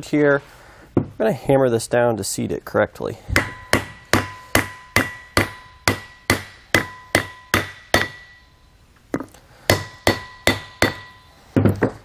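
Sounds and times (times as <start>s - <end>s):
mallet striking wood block: 3.4s - 8.4s, 9.2s - 12.0s.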